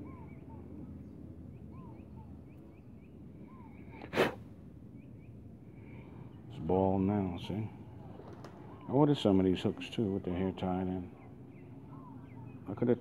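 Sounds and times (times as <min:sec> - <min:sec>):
low background noise: 0:00.0 - 0:13.0
small birds chirping: 0:00.0 - 0:13.0
person's sharp breath: 0:04.0 - 0:04.4.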